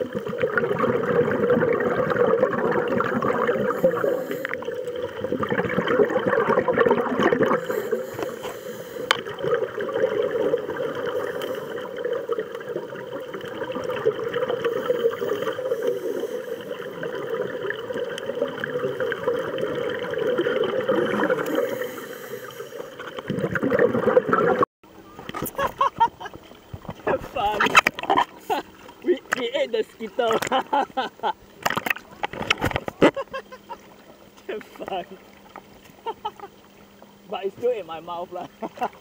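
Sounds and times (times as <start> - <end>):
underwater breath bubbles: 0.0 - 24.7.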